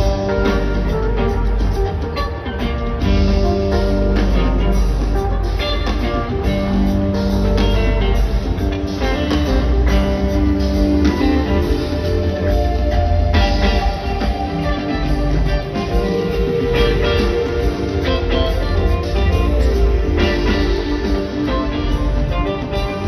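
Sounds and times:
bass: 0:00.0 - 0:23.0
drums: 0:00.0 - 0:23.0
electric guitars: 0:00.0 - 0:23.0.

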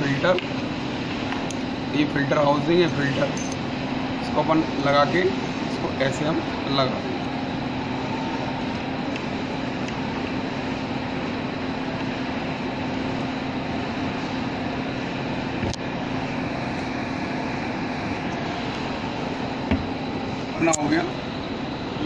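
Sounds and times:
machinery hum: 0:00.0 - 0:22.0.

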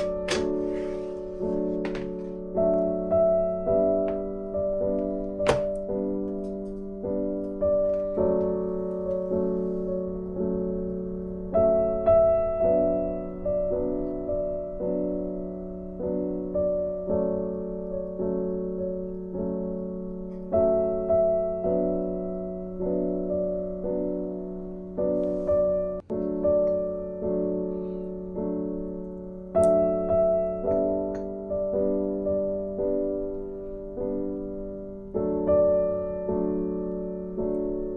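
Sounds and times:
piano music: 0:00.0 - 0:37.9.

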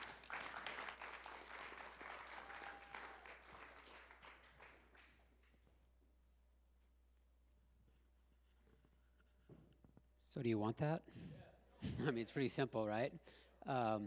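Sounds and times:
faint applause: 0:00.0 - 0:05.6.

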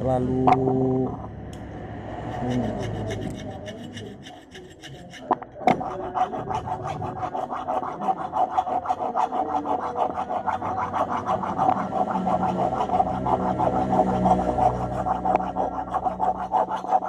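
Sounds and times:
file rasping on metal: 0:02.2 - 0:17.0.

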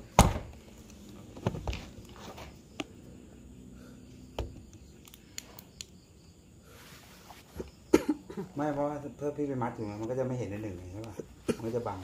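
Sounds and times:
loud thump: 0:00.2 - 0:00.5.

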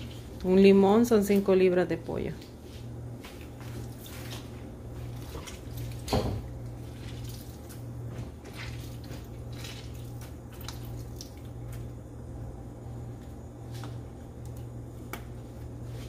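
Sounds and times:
steady low hum: 0:00.0 - 0:16.0
lemon squelching: 0:03.2 - 0:11.9
juice dripping onto meat: 0:05.4 - 0:12.0.

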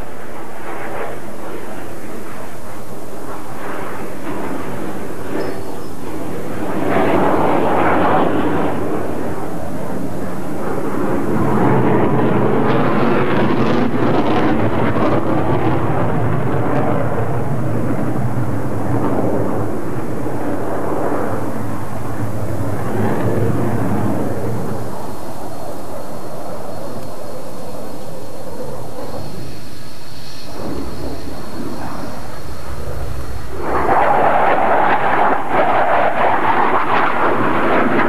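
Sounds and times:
jet engines roaring in flight: 0:00.0 - 0:38.0.

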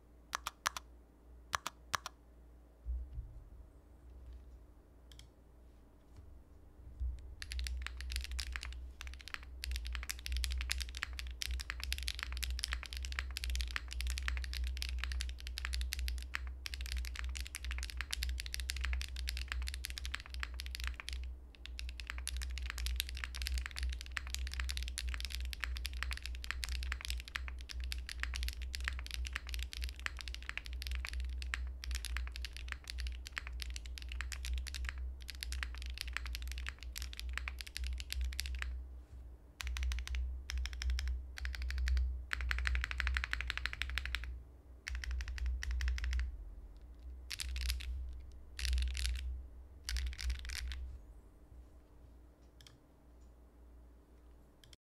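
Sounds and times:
mechanical keyboard typing: 0:00.4 - 0:00.8, 0:01.6 - 0:02.1, 0:07.4 - 0:38.8, 0:39.6 - 0:44.3, 0:44.9 - 0:46.3, 0:47.3 - 0:48.0, 0:48.6 - 0:50.8.

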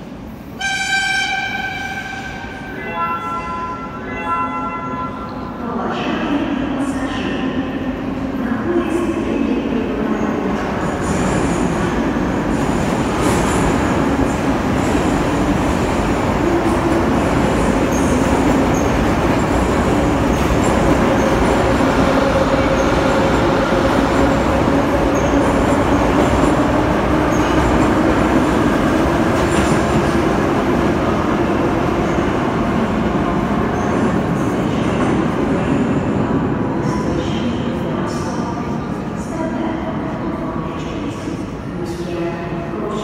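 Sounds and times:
train wheels on rail: 0:10.3 - 0:38.6.

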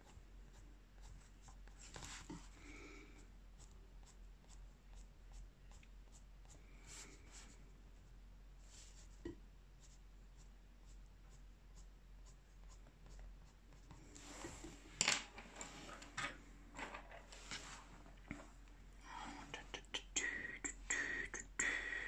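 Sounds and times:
rustling and handling noises: 0:01.6 - 0:02.5, 0:13.8 - 0:18.9
pencil scratching on paper: 0:09.8 - 0:14.8.

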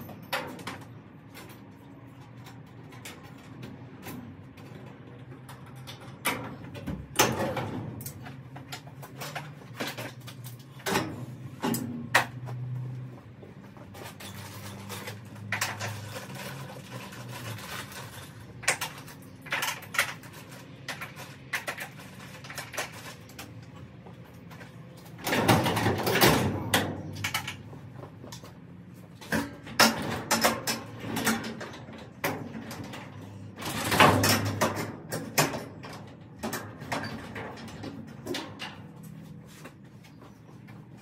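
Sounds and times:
garage door rattling in tracks: 0:25.2 - 0:27.7, 0:29.3 - 0:39.0
metal garage door clanking: 0:25.2 - 0:27.7, 0:29.3 - 0:39.0.

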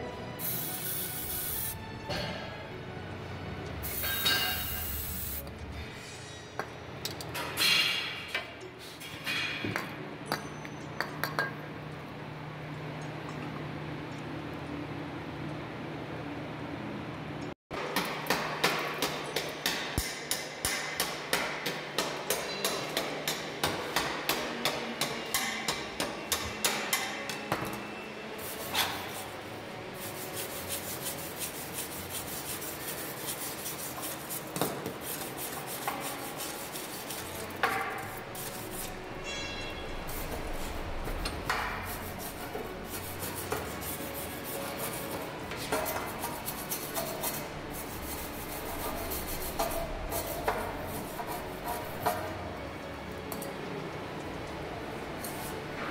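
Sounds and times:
wire brush scrubbing metal: 0:30.0 - 0:40.7, 0:41.6 - 0:52.2.

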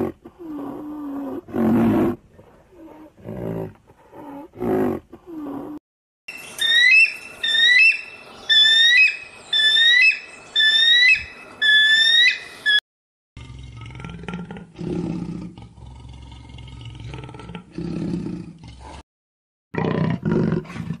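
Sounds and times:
bird-like whistled call: 0:06.3 - 0:12.8.

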